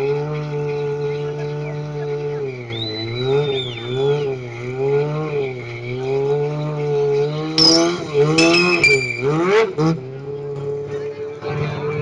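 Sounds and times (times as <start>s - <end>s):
motorbike engine revving: 0.0s - 12.0s
tyre squealing: 6.9s - 9.8s.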